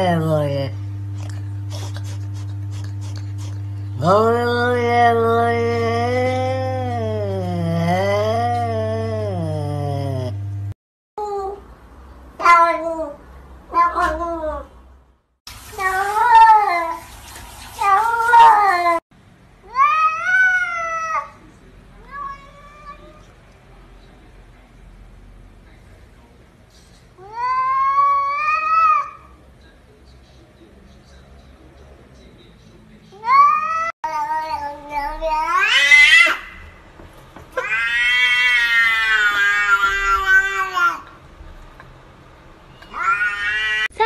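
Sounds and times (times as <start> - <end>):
cat meowing: 12.4 - 14.7, 33.2 - 36.6, 37.6 - 41.1, 42.8 - 44.0.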